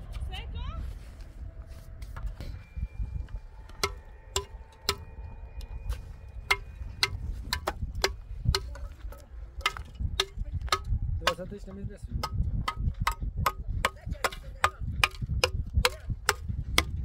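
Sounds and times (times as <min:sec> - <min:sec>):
steady low rumble: 0:00.0 - 0:17.0
sharp ringing clicks and taps: 0:03.2 - 0:13.6.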